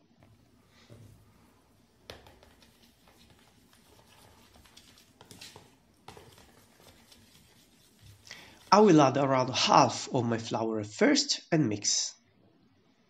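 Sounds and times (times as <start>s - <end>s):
spoon tapping and scraping bowl: 2.0s - 8.8s
spoon stirring water in bowl: 2.0s - 8.9s.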